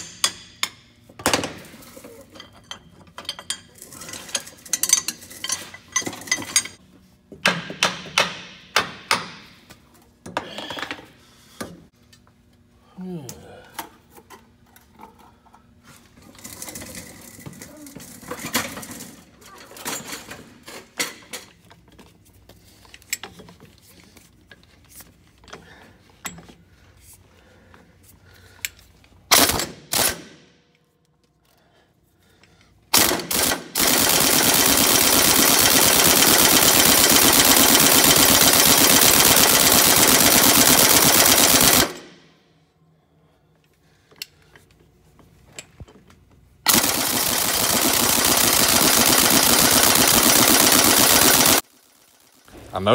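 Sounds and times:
impact wrench hammering: 0:00.0 - 0:01.6, 0:07.3 - 0:09.6
tools clanking and clicking: 0:00.0 - 0:08.4, 0:16.4 - 0:22.2, 0:22.8 - 0:26.6.

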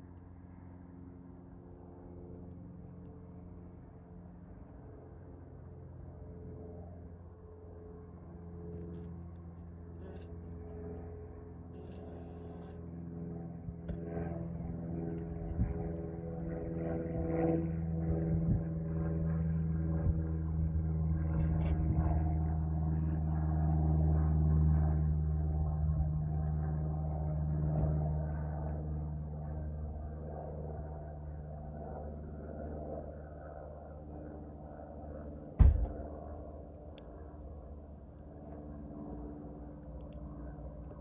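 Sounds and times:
low steady hum: 0:06.4 - 0:28.6
bee chewing with small clicks: 0:40.0 - 0:40.4.

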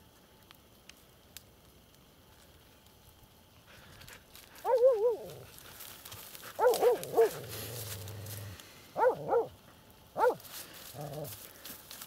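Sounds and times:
dog barking: 0:04.6 - 0:05.3, 0:06.6 - 0:07.4, 0:09.0 - 0:09.5, 0:10.2 - 0:10.4.

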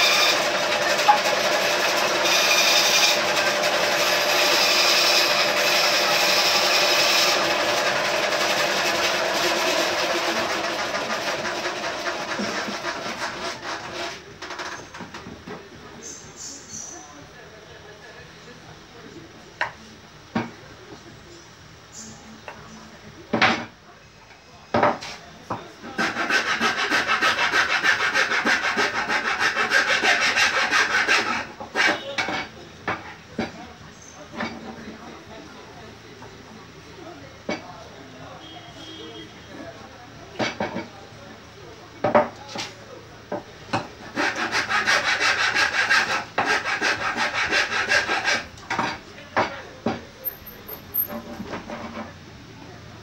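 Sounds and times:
rasp scraping wood: 0:00.0 - 0:15.3, 0:25.8 - 0:32.5, 0:43.7 - 0:49.0, 0:51.0 - 0:52.1.

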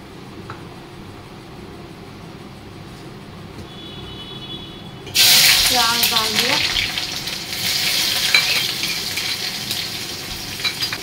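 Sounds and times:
seeds sizzling in hot oil: 0:05.1 - 0:11.0.

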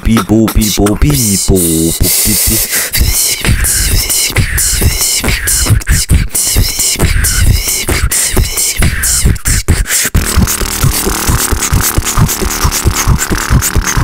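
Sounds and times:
beatbox mouth thumps: 0:00.0 - 0:14.0.

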